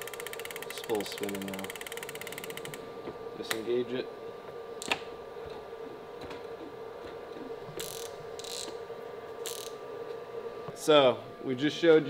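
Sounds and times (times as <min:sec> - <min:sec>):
reel mechanism rasping: 0:00.0 - 0:02.8, 0:07.8 - 0:08.7, 0:09.4 - 0:09.8
steady hum: 0:00.0 - 0:12.0.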